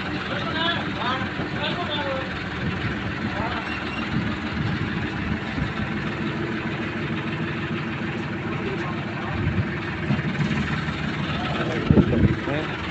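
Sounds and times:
tractor diesel engine idling: 0.0 - 12.9.

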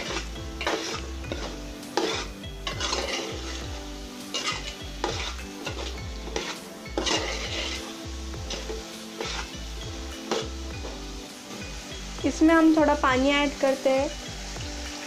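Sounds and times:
spoon scraping a metal pot: 0.0 - 9.6
food sizzling in oil: 0.0 - 15.0.

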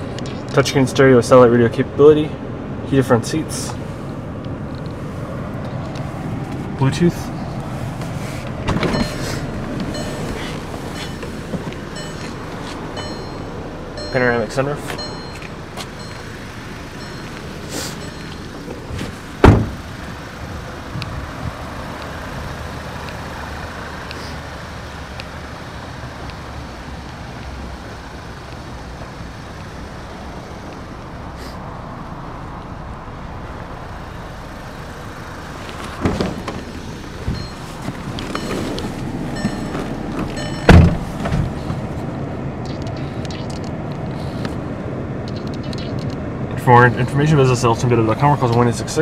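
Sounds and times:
outdoor background noise: 0.0 - 49.0
car door thudding shut: 8.6 - 9.4, 18.9 - 19.8, 35.9 - 37.4, 39.4 - 41.8.

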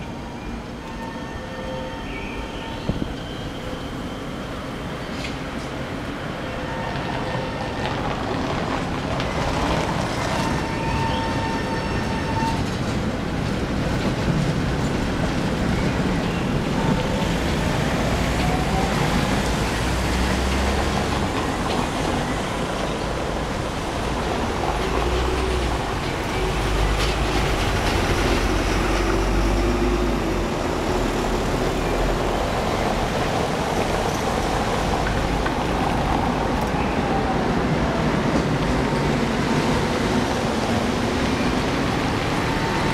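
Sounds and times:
tram running past: 0.0 - 42.9
cars rolling over cobblestones: 6.8 - 42.9
wheel squeal on rails: 10.3 - 13.0.

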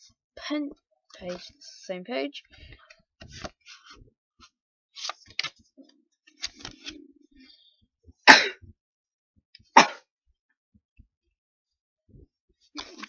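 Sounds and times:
paper pages rustling: 2.7 - 4.0, 5.0 - 5.7, 6.3 - 7.0, 12.8 - 13.0.

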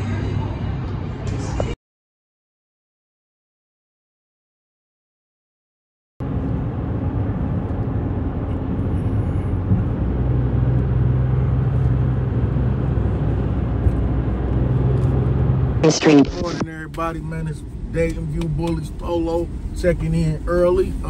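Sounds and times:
car road and engine noise: 0.0 - 1.8, 6.2 - 21.0.

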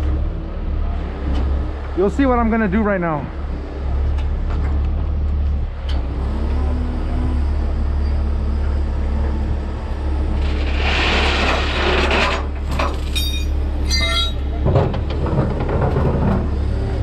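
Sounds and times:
short ringing clinks: 13.1 - 14.4.

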